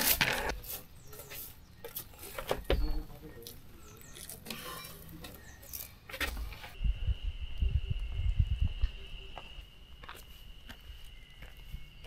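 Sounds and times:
footsteps on wooden deck: 1.8s - 3.5s, 9.3s - 12.0s.

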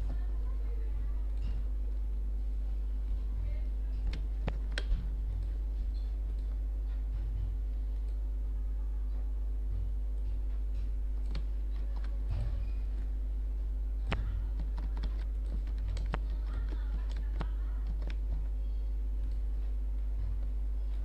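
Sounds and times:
steady low hum: 0.0s - 21.0s
computer keyboard keys clicking: 11.2s - 12.2s, 14.0s - 18.6s.

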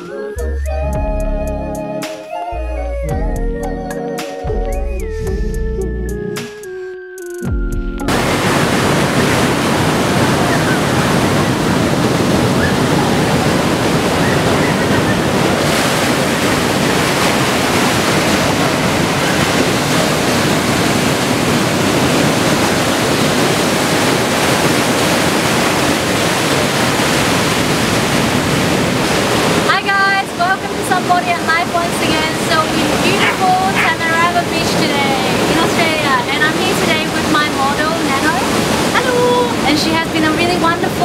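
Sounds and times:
surf breaking on rocks: 8.1s - 40.9s.

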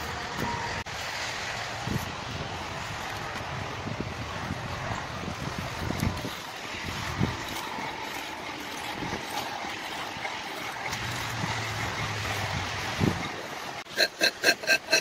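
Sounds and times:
steady background hum: 1.8s - 15.0s
knife scraping wooden handle: 7.2s - 15.0s.

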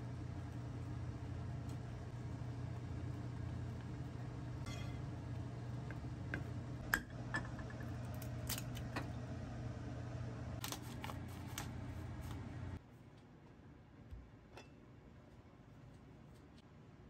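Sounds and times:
low hum: 0.0s - 12.8s.

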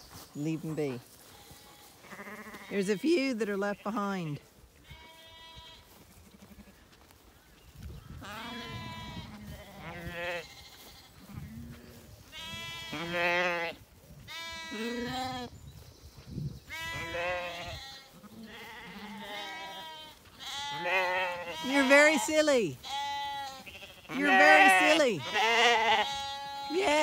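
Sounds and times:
lambs bleating: 1.3s - 3.0s, 4.8s - 6.8s, 8.2s - 15.5s, 16.7s - 27.0s.

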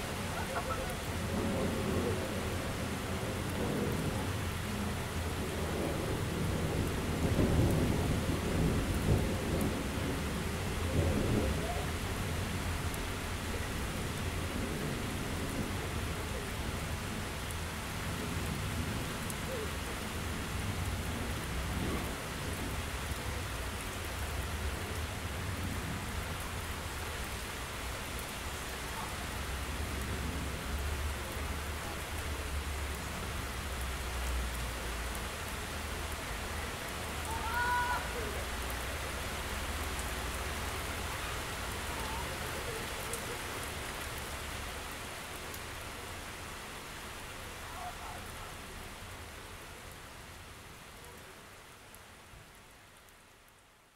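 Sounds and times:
steady rain falling: 0.0s - 53.9s
low rolling thunder: 0.4s - 12.8s, 18.0s - 22.9s.

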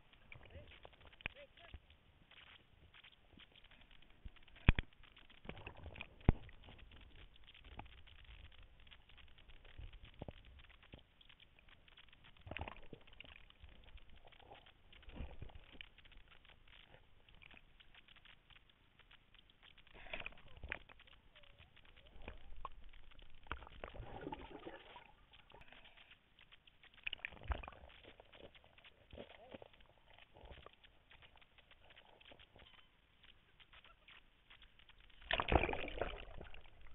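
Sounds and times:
muffled underwater sloshing: 0.0s - 36.9s.

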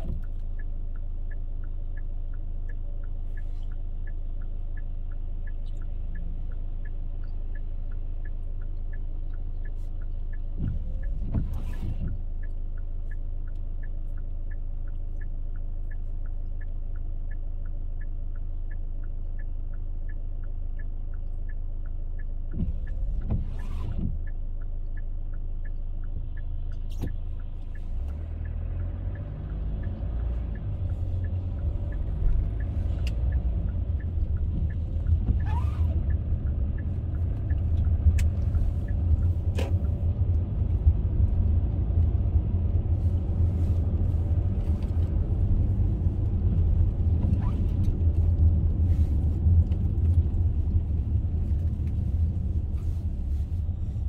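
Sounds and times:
car road and engine rumble: 0.0s - 54.0s
regular light ticking: 0.0s - 54.0s.

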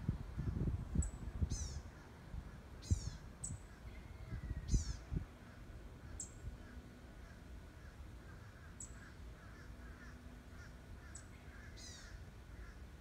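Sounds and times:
soft bird chirping: 2.8s - 12.8s.

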